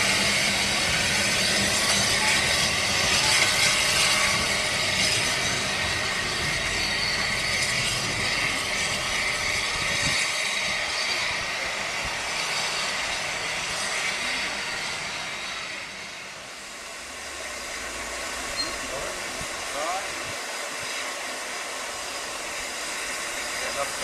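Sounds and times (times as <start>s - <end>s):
steam hissing from locomotive: 0.0s - 24.0s.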